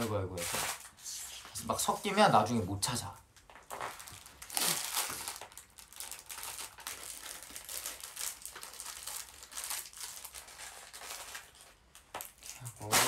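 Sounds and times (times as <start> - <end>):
plastic bag crinkling: 3.5 - 13.0.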